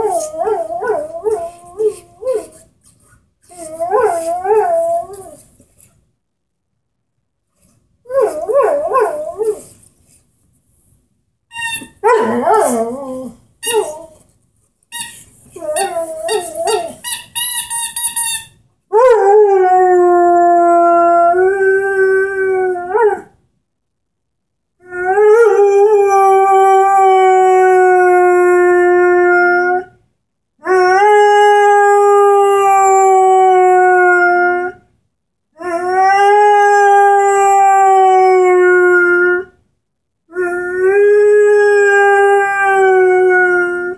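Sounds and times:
dog howling: 40.3 - 43.9.

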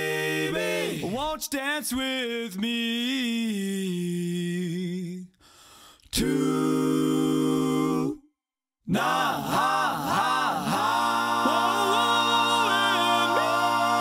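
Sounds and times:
pop song with vocal harmonies: 0.0 - 5.2, 6.0 - 8.2, 8.9 - 14.0.

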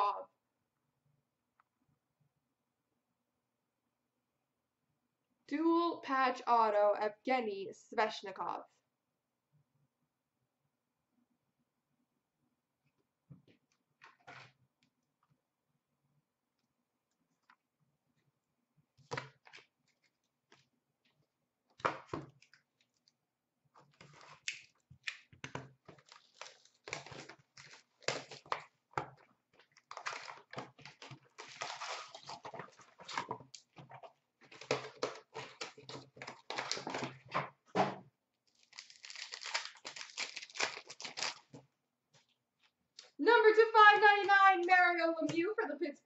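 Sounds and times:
foil wrapper crinkling: 25.9 - 28.6, 29.6 - 33.2, 38.4 - 41.6.

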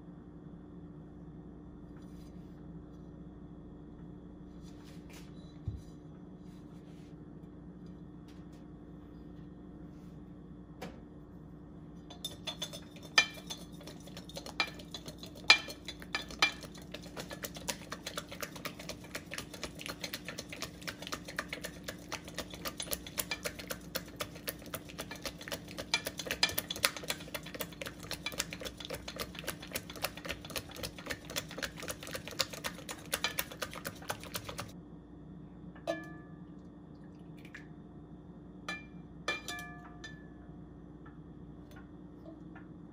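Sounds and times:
whisk clicking against glass bowl: 12.1 - 34.7.

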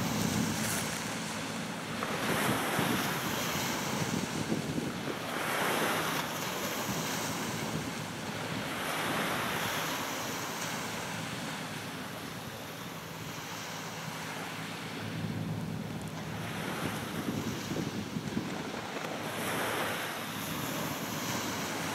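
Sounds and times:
wind buffeting microphone: 0.0 - 9.9, 15.0 - 21.9
boat engine hum: 0.0 - 21.9
choppy water washing: 0.0 - 21.9.

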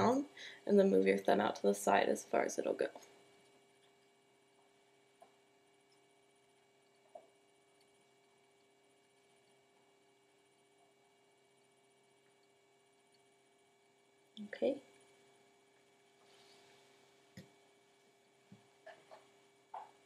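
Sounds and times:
faint electrical hum: 0.0 - 20.0.

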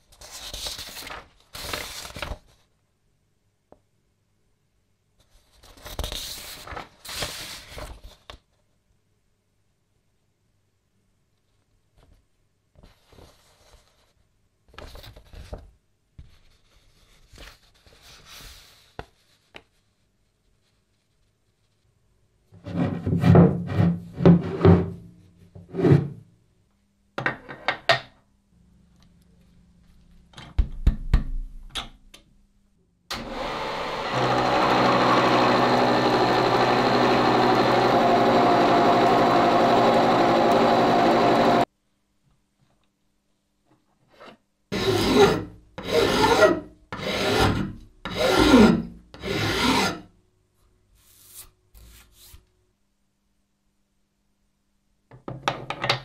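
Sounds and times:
milling machine cutting steel: 33.1 - 41.6.

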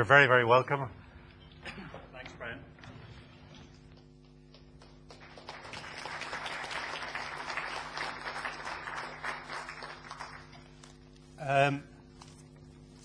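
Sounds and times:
audience applauding: 4.5 - 10.7.

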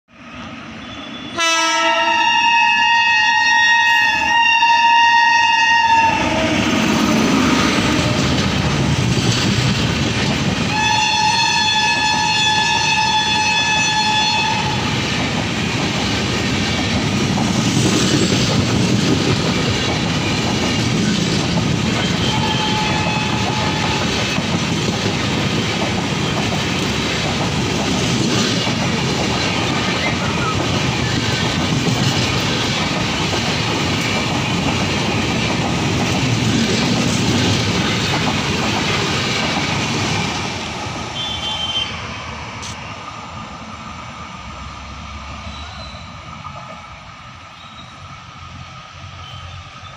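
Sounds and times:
train coaches rumbling past: 0.1 - 49.9
locomotive horn: 1.0 - 8.3, 10.7 - 14.9, 22.0 - 24.3, 41.2 - 42.0.

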